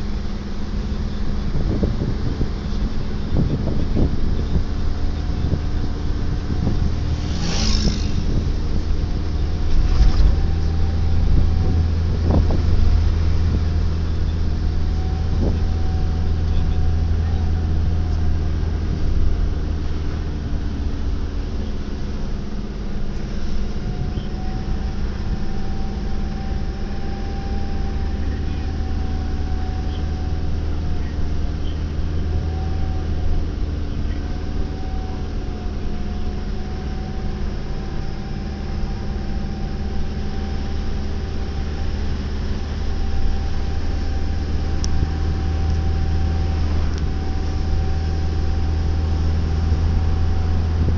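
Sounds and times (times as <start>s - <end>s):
car engine and road drone: 0.0s - 50.9s
faint whine: 0.0s - 50.9s.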